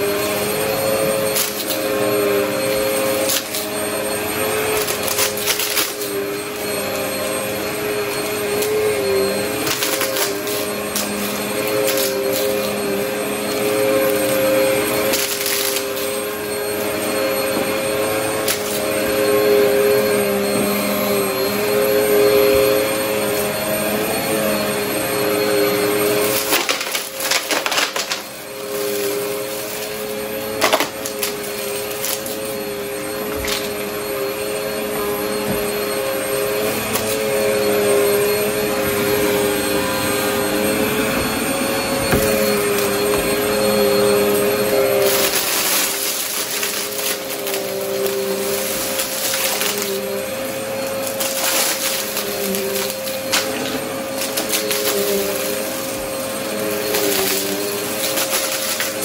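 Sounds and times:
vacuum cleaner running on carpet: 0.0 - 59.0
debris crackling in vacuum: 44.9 - 50.2, 50.9 - 59.0.

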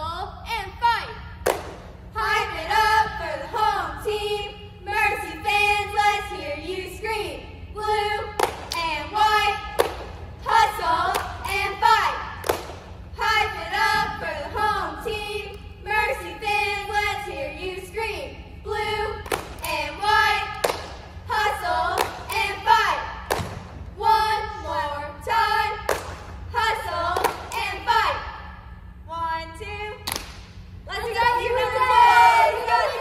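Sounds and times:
sharp claps: 1.4 - 1.9, 8.4 - 8.9, 9.7 - 10.2, 11.1 - 11.6, 12.4 - 12.9, 19.2 - 19.8, 20.5 - 21.0, 21.9 - 22.5, 23.2 - 23.7, 25.8 - 26.4, 27.2 - 27.7, 30.0 - 30.6
girls chanting a cheer: 2.1 - 28.5, 30.9 - 33.0.

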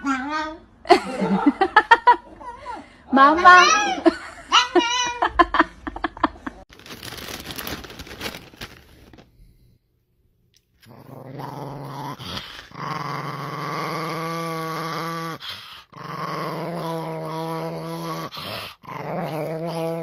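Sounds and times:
small dog growling: 10.8 - 20.0.

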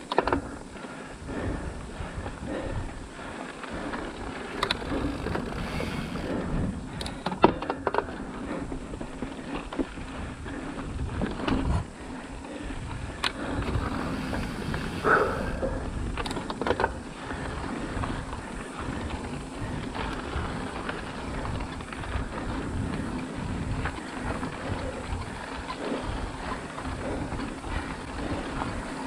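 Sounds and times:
bike clicks and knocks: 0.0 - 0.7, 3.5 - 29.0
bike tyre rumble: 0.0 - 29.0
wind on microphone: 0.0 - 29.0.

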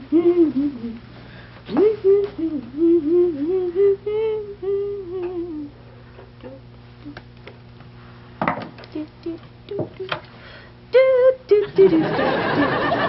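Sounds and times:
woman humming: 0.0 - 1.1, 1.7 - 7.3, 8.8 - 10.3, 10.9 - 12.0
low steady background hum: 0.0 - 13.0.

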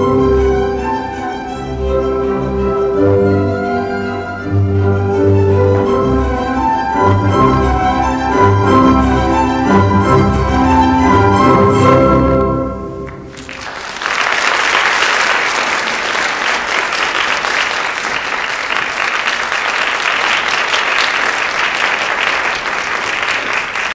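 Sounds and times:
ballet music: 0.0 - 13.6
audience clapping: 13.0 - 23.9.

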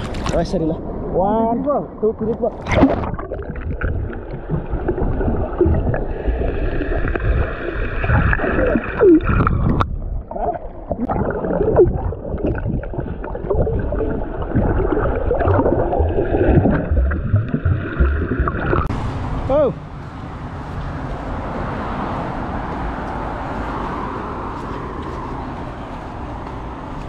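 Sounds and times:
water sloshing and gurgling: 1.8 - 19.4.

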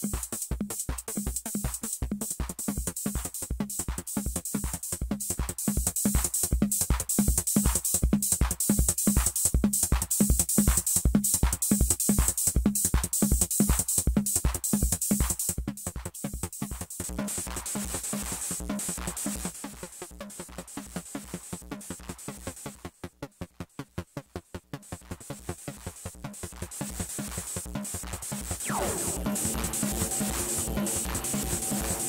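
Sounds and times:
kick drum pattern: 0.0 - 17.7
hi-hat hiss: 0.0 - 21.6
synth: 28.6 - 32.0.

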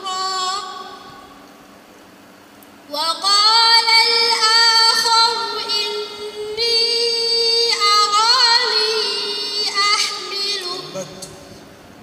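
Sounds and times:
girl reciting melodically: 0.0 - 1.0, 2.9 - 11.3.

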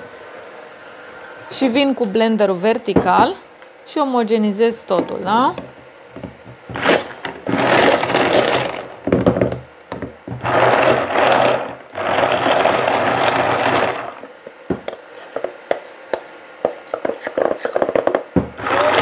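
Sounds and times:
immersion blender whirring: 6.7 - 9.0, 10.3 - 14.3, 18.4 - 19.0.

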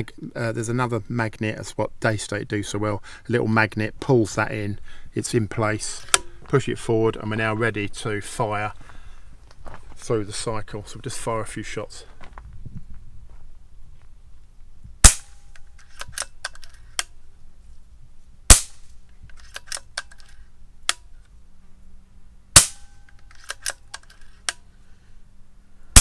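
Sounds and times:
air rifle shot crack: 15.0 - 15.4, 18.5 - 18.9, 22.6 - 23.0
rifle lever clicks: 15.5 - 17.1, 19.3 - 21.0, 23.1 - 24.6.

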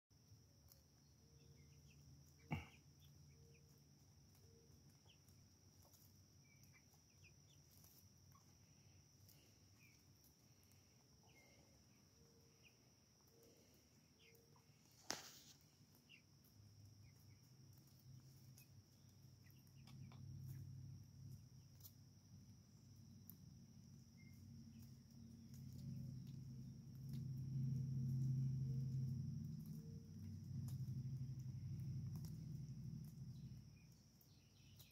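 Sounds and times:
chickens clucking softly: 16.0 - 20.7.

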